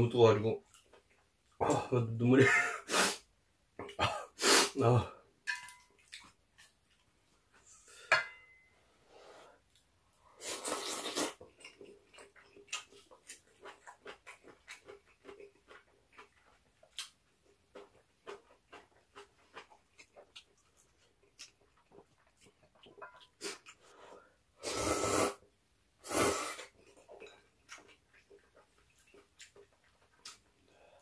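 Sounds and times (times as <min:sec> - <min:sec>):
wet chewing and lip smacks: 0:05.8 - 0:07.6, 0:10.7 - 0:23.8, 0:26.6 - 0:30.7
noodle slurping: 0:10.3 - 0:16.4, 0:23.3 - 0:25.4, 0:26.0 - 0:27.1.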